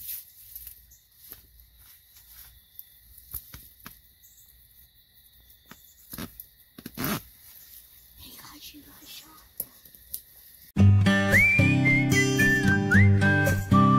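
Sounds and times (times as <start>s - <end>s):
insects trilling: 0.0s - 10.8s.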